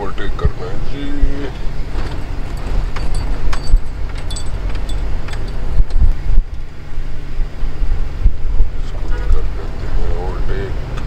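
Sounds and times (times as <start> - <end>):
car road noise rumble: 0.0 - 11.0
light rattles and clicks: 1.5 - 6.7.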